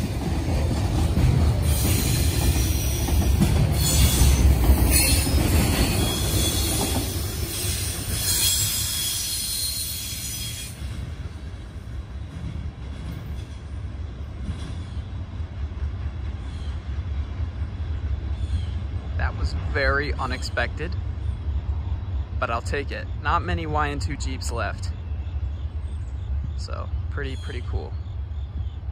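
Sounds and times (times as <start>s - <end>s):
freight train rumbling past: 0.0s - 28.9s
high-pitched wheel squeal: 7.5s - 10.8s.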